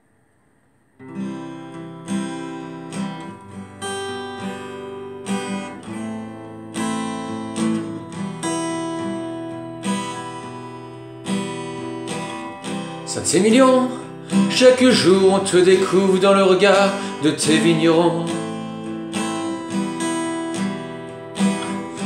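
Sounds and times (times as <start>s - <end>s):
acoustic guitar strumming chords: 1.0s - 22.0s.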